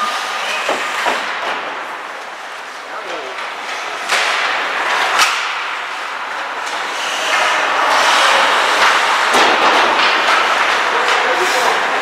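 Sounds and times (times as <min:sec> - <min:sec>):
hockey stick or puck crack: 0:03.4 - 0:12.0.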